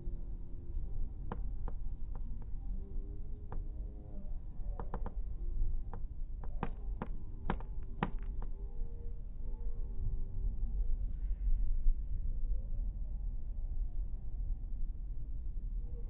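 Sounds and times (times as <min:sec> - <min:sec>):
sharp clicks and knocks: 0:04.6 - 0:08.5.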